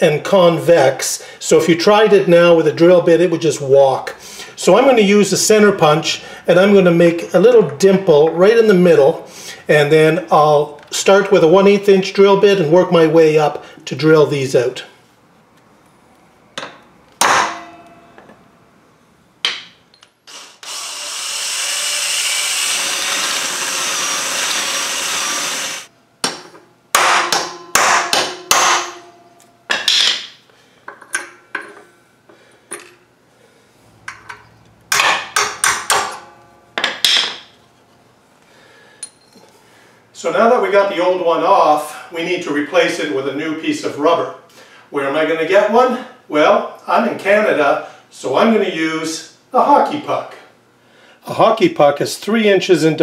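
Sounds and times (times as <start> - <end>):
hammer striking metal punch: 16.6 - 18.4, 26.2 - 30.4, 34.1 - 37.5
cordless drill boring metal: 20.3 - 25.9
sharp metal knocks and taps: 34.1 - 37.5.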